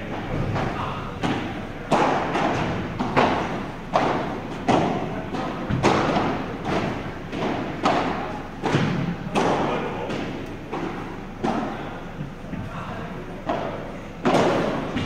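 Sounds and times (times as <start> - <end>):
rackets hitting ball: 0.0 - 15.0
ball bouncing on court: 0.2 - 11.9.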